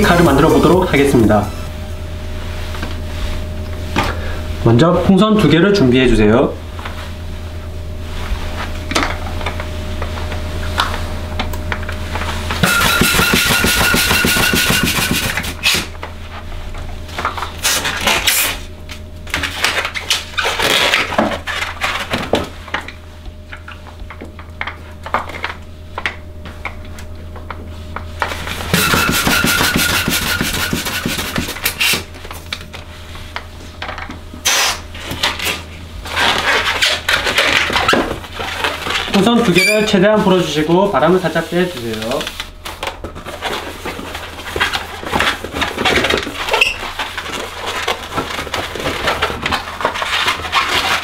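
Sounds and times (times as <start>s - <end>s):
steady low hum: 0.0s - 51.0s
latex balloons squeaking: 12.6s - 15.8s, 20.0s - 21.6s, 28.7s - 32.0s, 36.1s - 40.4s, 46.4s - 47.1s.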